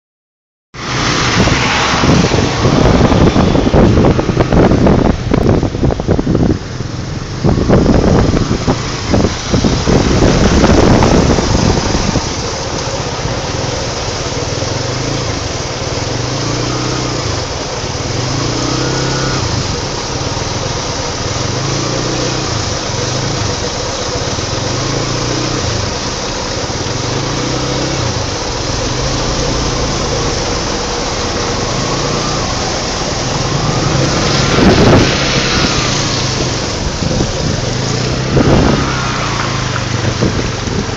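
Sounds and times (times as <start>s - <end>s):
wind buffeting: 0.8s - 15.2s, 28.8s - 40.9s
vehicle engine running: 0.8s - 40.9s
water splashing: 0.8s - 40.9s.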